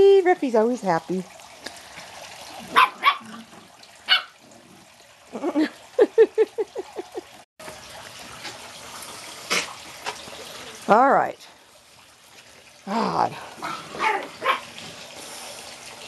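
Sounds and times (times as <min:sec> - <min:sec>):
small dogs yapping: 0:02.7 - 0:03.5, 0:04.1 - 0:04.4, 0:13.6 - 0:14.8.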